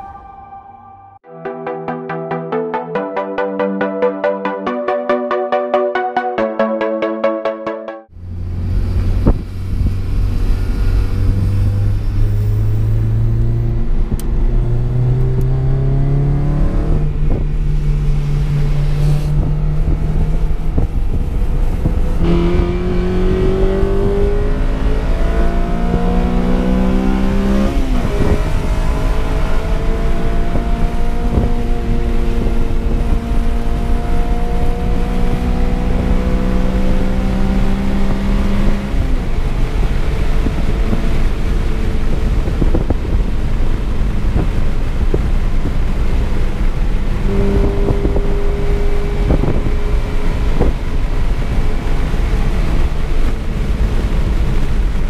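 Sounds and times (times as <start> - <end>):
road and wind noise: 8.2 - 55.0
car engine revving: 8.5 - 41.6.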